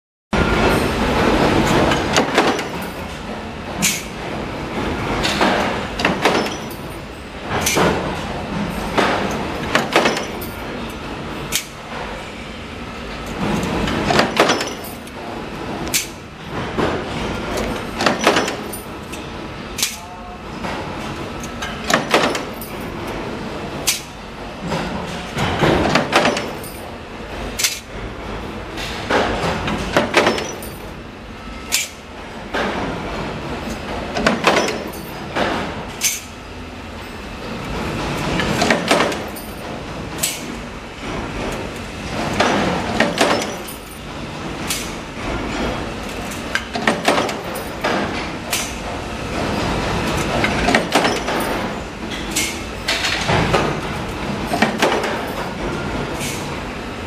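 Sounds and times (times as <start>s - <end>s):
punch press stamping bangs: 0.4s - 10.7s, 13.4s - 21.0s, 21.8s - 23.0s, 23.7s - 28.2s, 28.8s - 30.8s, 31.6s - 36.3s, 38.3s - 56.4s
press running steadily: 0.4s - 57.0s.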